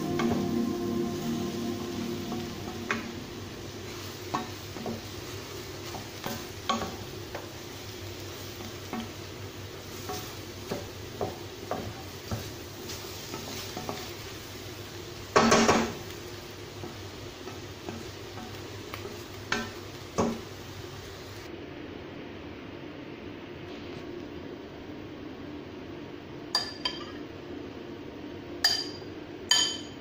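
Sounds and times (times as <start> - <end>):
light sizzle: 0.0 - 21.6
spatula stirring food in pan: 3.7 - 20.9
spatula tapping and scraping pan: 5.8 - 7.6, 8.5 - 9.2, 9.9 - 14.3.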